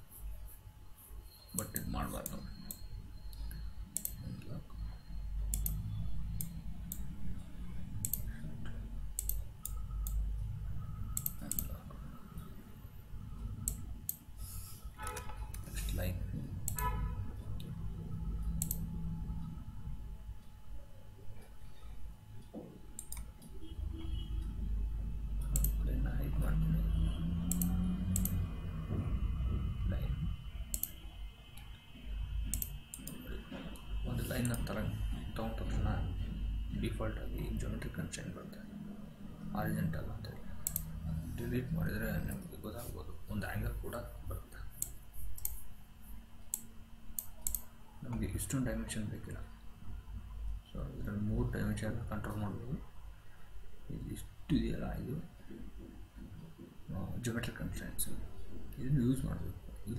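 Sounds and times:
low steady hum: 0.0 - 59.9
computer mouse buttons clicking: 1.6 - 4.2, 5.5 - 5.8, 8.0 - 8.3, 9.2 - 10.2, 11.2 - 11.8, 18.5 - 18.9, 23.0 - 23.5, 25.4 - 25.8, 27.5 - 28.4, 30.7 - 31.0, 32.5 - 33.2, 40.6 - 40.9, 44.8 - 45.7, 46.4 - 47.7.

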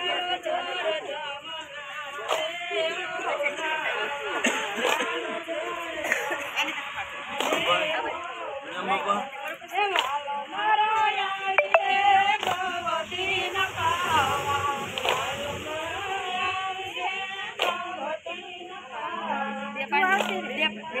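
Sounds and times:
women singing together: 0.0 - 21.0
sharp handclaps: 2.2 - 2.6, 4.5 - 5.2, 7.3 - 7.7, 9.9 - 10.2, 11.6 - 12.8, 15.0 - 15.4, 17.6 - 17.9, 20.1 - 20.4.

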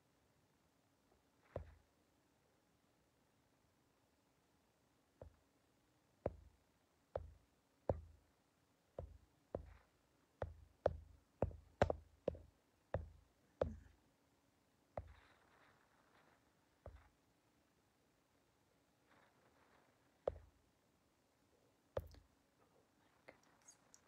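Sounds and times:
sharp knocks with dull thuds: 1.4 - 1.9, 5.2 - 5.5, 6.2 - 6.6, 7.2 - 8.3, 8.9 - 14.0, 15.0 - 16.2, 16.8 - 17.2, 20.2 - 20.6, 22.0 - 22.3.

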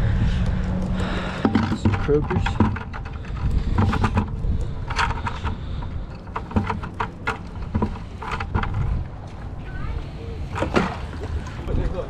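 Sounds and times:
wind rumble on microphone: 0.0 - 10.6, 11.2 - 12.0
bucket and rope knocks and rustles: 1.3 - 9.0.

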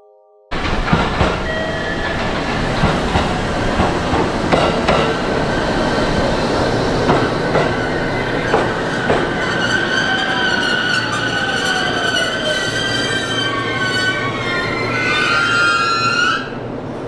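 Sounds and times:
train wheels clicking over rail joints: 0.5 - 12.0
train high whine: 0.5 - 17.0
train rolling rumble: 0.5 - 17.0.

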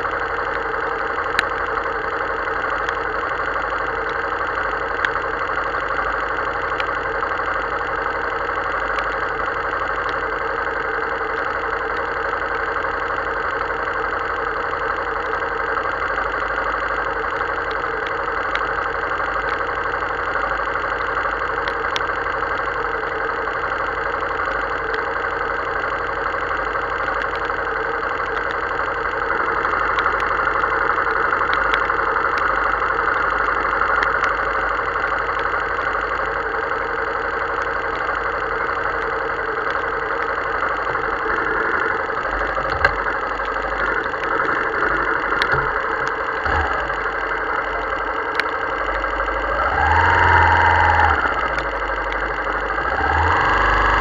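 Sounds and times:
motorcycle engine idling: 0.0 - 54.0
light ticks: 0.4 - 7.7, 8.5 - 54.0.

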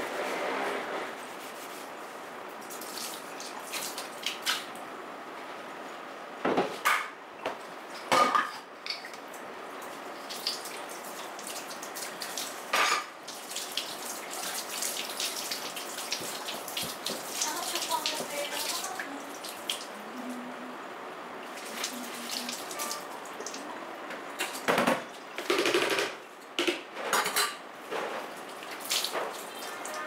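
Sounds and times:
tap water running: 2.6 - 4.8, 8.8 - 20.3, 21.4 - 26.5, 28.2 - 30.0.

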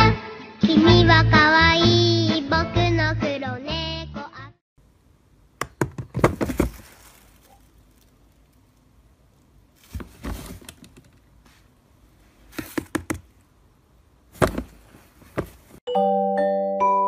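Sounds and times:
plastic trash can lid clattering: 5.6 - 7.0, 14.4 - 15.8.

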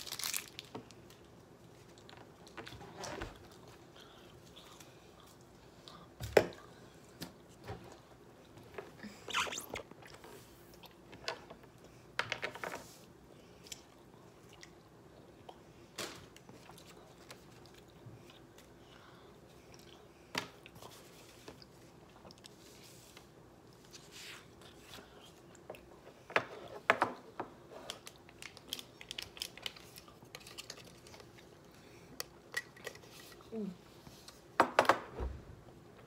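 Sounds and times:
plastic packaging crinkling: 0.0 - 1.2, 28.0 - 31.4.

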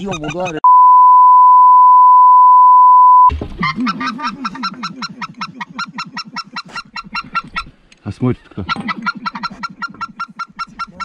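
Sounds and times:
loud beep tone: 0.6 - 3.3.

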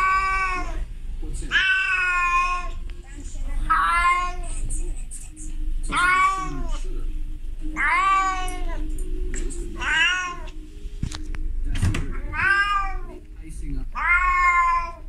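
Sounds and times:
cat mating calls: 0.0 - 0.9, 1.5 - 2.8, 3.7 - 4.6, 5.9 - 6.9, 7.7 - 8.9, 9.7 - 10.6, 12.1 - 13.2, 13.9 - 15.0.

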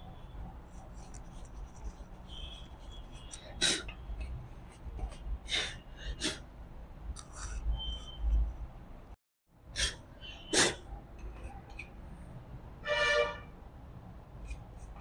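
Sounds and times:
cloth rubbing on metal: 0.8 - 3.4.

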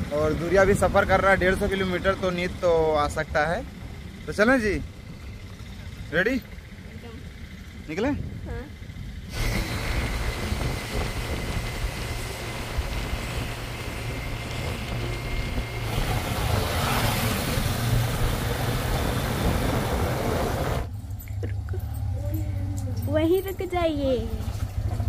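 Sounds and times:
wind rushing over microphone: 0.0 - 2.3, 9.2 - 20.9
motorcycle engine: 0.0 - 25.0
high whine: 8.0 - 23.2.

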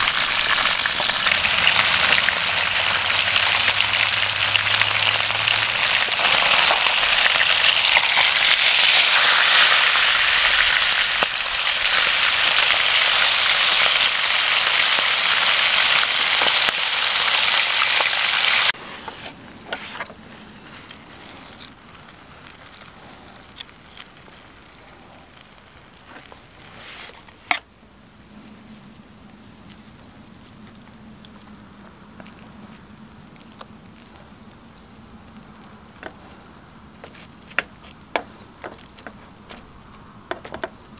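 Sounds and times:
fish sizzling in a pan: 0.0 - 18.8.

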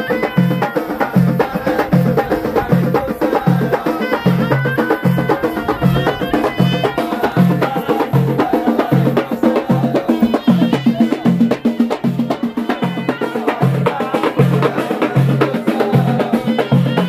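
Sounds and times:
sharp drum strokes: 0.0 - 17.0
deep drum beat: 0.1 - 17.0
reedy oboe melody: 4.0 - 8.0.

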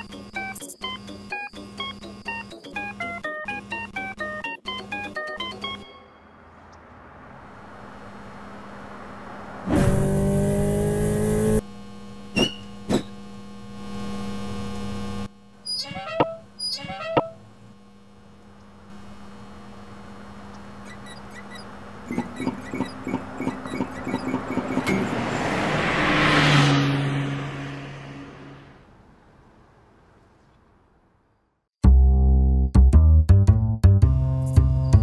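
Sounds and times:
electrical hum: 7.3 - 25.3
loud buzz: 7.5 - 15.4.

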